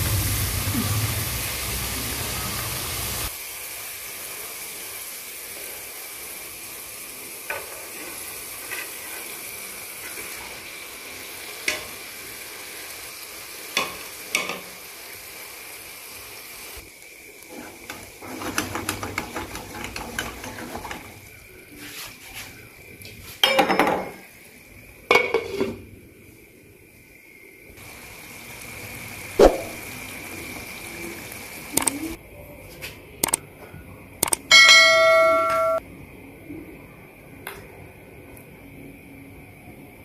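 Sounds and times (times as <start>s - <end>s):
food sizzling in oil: 0.0s - 23.4s, 24.1s - 32.2s
spatula clattering in pan: 17.9s - 21.1s.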